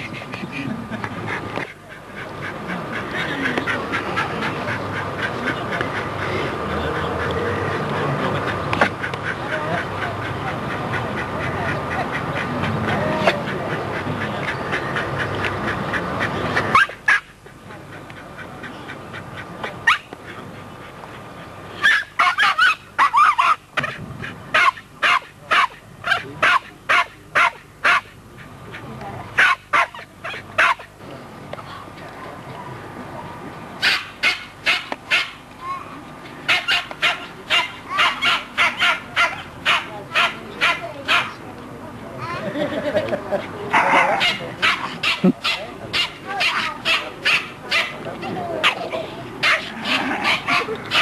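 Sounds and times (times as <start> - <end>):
noisy background: 0.0 - 51.0
dogs yelping and yapping: 16.6 - 17.3, 19.8 - 20.1, 21.8 - 28.1, 33.8 - 35.4, 36.5 - 41.4, 48.6 - 51.0.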